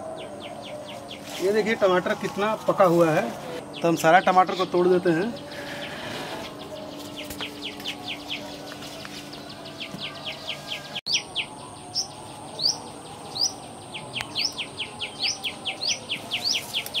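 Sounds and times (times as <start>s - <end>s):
small birds chirping: 3.6s - 17.0s.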